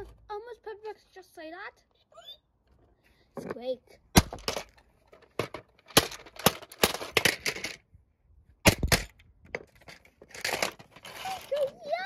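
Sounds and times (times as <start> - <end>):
hard plastic cracking and clattering: 4.2 - 7.8, 8.7 - 12.0.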